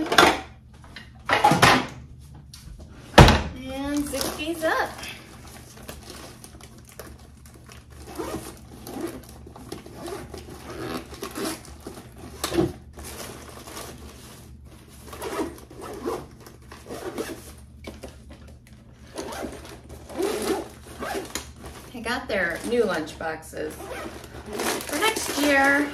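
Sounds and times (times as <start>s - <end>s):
bag rustling: 3.8s - 18.1s, 19.0s - 23.0s, 23.7s - 25.9s
zippers opening and closing: 8.0s - 11.8s, 15.0s - 17.6s, 19.1s - 21.5s, 23.7s - 25.8s.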